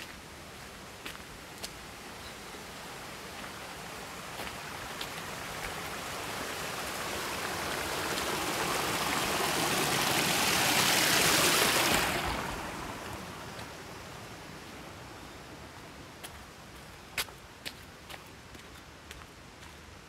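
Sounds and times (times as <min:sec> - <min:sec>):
water rushing over rocks: 0:00.0 - 0:15.0.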